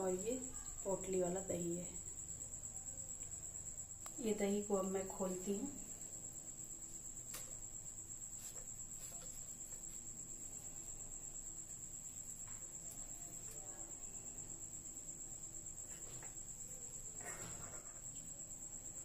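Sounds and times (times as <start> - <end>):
cricket trilling: 0.0 - 19.0.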